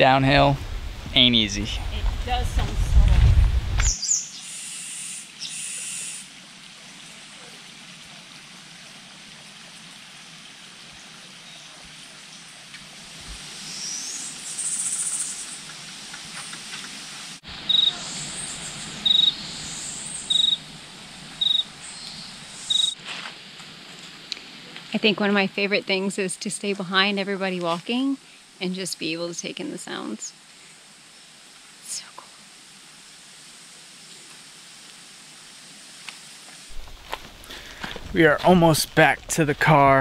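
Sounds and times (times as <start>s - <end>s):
insects hissing: 3.8s - 6.3s, 13.0s - 23.6s, 28.1s - 38.2s.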